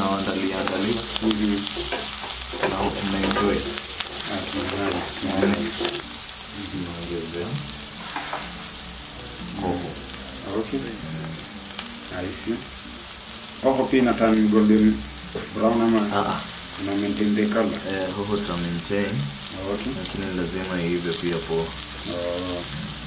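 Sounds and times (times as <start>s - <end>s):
onions sizzling in a pot: 0.0s - 23.0s
voice-like pitched sound: 2.7s - 14.1s.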